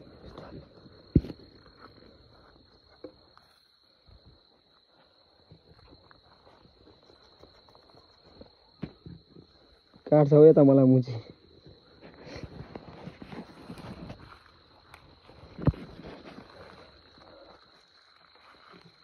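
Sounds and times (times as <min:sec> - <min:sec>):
footsteps and rustling on ground: 0:00.0 - 0:10.2, 0:11.3 - 0:19.0
crickets trilling: 0:00.0 - 0:19.0.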